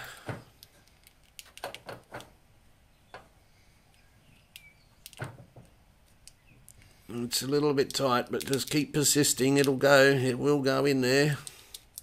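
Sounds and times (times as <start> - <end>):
plastic tubing clicks and rustles: 0.2 - 2.4, 3.9 - 9.8, 11.3 - 12.0.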